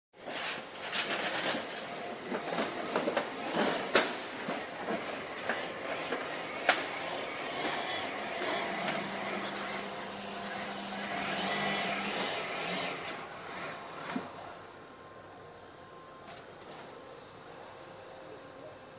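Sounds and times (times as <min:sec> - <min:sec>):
roll forming machine whirring: 0:00.2 - 0:15.3.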